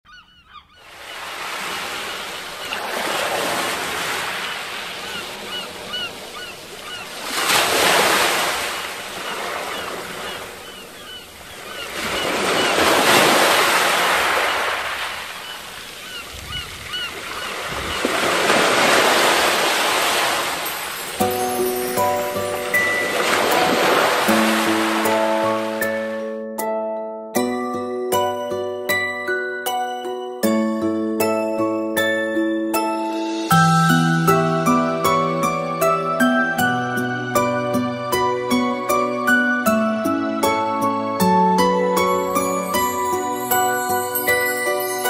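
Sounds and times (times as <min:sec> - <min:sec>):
bird chirps: 0:00.1 - 0:01.2, 0:09.3 - 0:12.8
surf washing in and out: 0:00.8 - 0:25.9.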